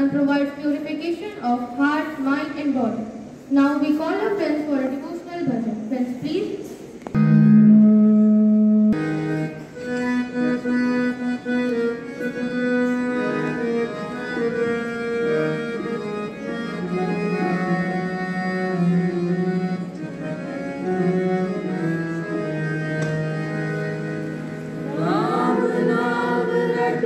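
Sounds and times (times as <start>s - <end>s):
harmonium playing slow melody: 7.2s - 27.0s.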